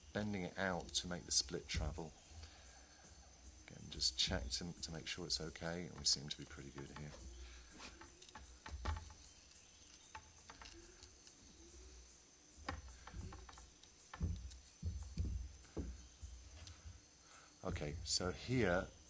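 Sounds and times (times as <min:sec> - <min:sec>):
cane splitting clicks and knocks: 0:12.6 - 0:16.0.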